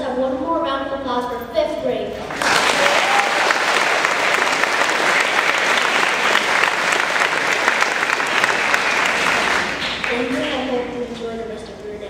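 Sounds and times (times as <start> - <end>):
audience applauding: 2.3 - 10.8.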